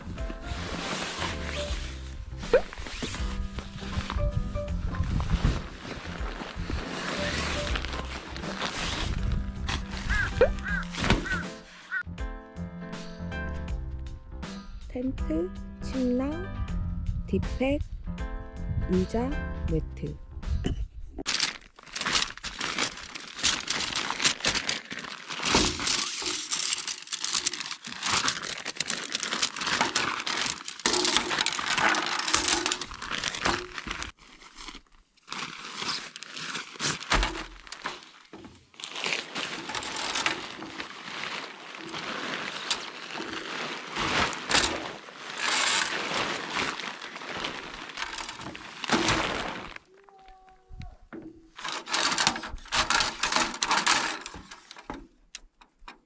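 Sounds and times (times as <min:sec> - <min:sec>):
nylon fabric rustling and crinkling: 0:00.0 - 0:12.0, 0:21.2 - 0:50.0, 0:51.6 - 0:55.0.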